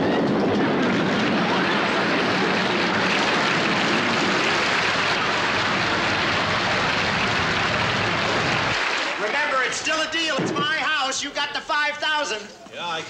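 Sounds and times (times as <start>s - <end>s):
earthquake rushing roar: 0.0s - 9.3s.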